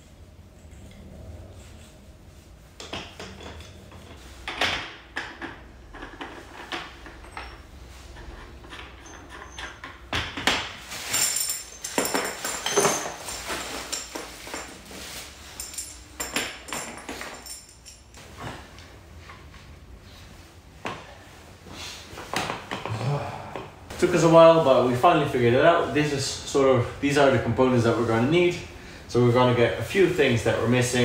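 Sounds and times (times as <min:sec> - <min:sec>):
metal fittings clinking and knocking: 0:02.8 - 0:18.2.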